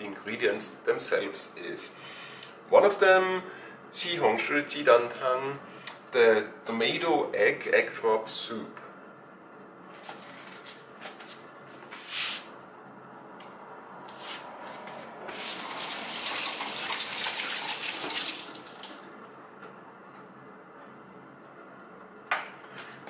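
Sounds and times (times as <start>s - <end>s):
tap water splashing into sink: 15.7s - 19.0s.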